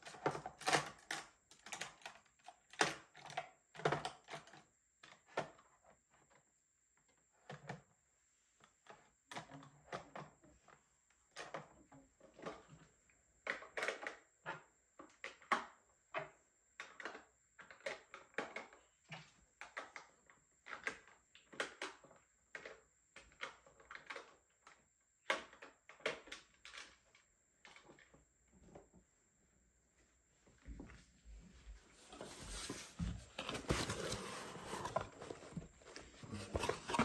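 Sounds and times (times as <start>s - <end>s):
plastic items clicking: 32.2s - 37.0s.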